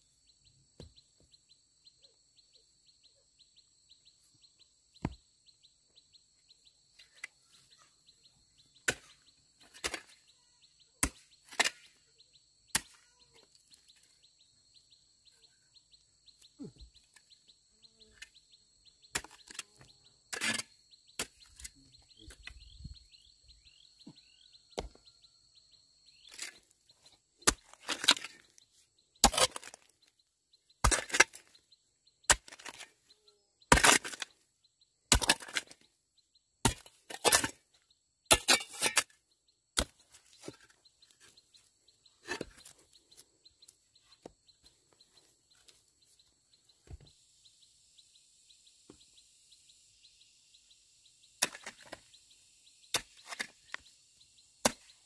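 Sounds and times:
chopping strikes on wood: 5.0 - 5.2, 24.0 - 25.1
high insect or bird hiss: 46.0 - 51.4, 52.1 - 54.6.

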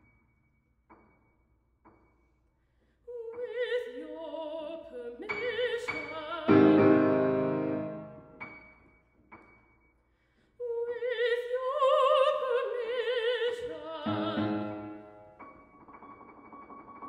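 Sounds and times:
soft piano: 5.2 - 9.9, 13.9 - 17.0.

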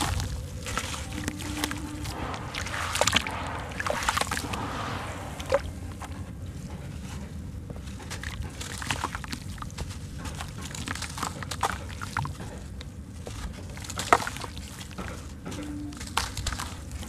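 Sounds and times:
wet cement lump crunching in hands: 0.0 - 4.6.

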